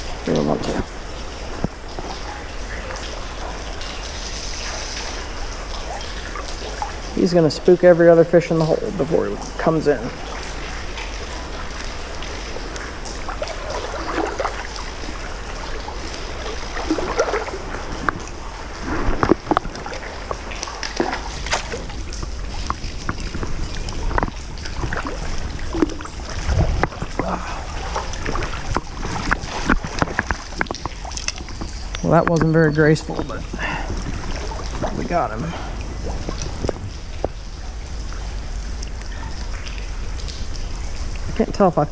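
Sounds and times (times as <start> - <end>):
water splashes: 0.0 - 41.9
wind on microphone: 21.0 - 31.7.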